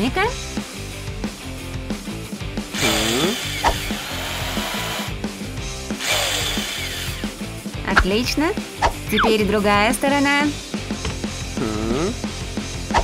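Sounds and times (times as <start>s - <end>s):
cordless drill driving screws: 2.8s - 5.2s, 6.0s - 7.3s.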